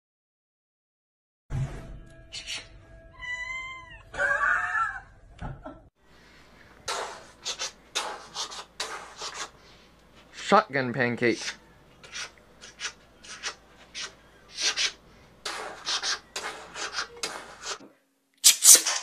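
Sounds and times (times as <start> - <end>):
cat meowing: 3.2 - 5.0
cat hissing: 6.9 - 9.6, 11.4 - 17.8.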